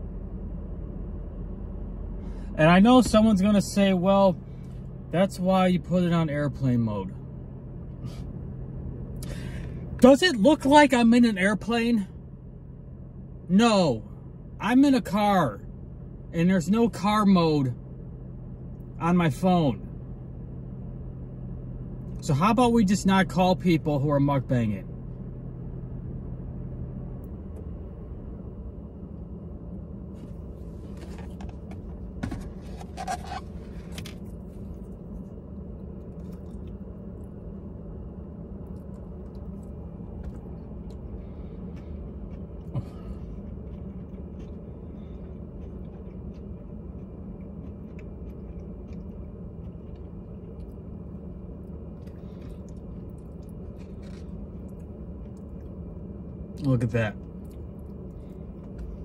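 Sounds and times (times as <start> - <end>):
car interior hum: 0.0 - 59.0
chewing: 33.5 - 37.3, 38.6 - 51.0, 51.6 - 55.8.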